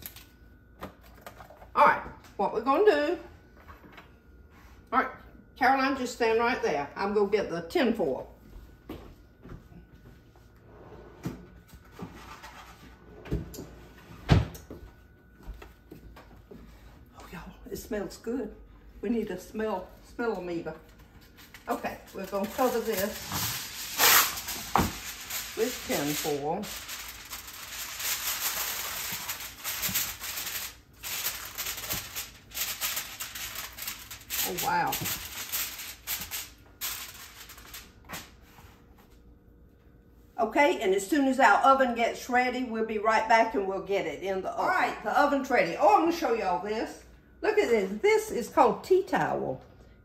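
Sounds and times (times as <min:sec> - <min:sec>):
foil box rustling: 0:21.5 - 0:37.8.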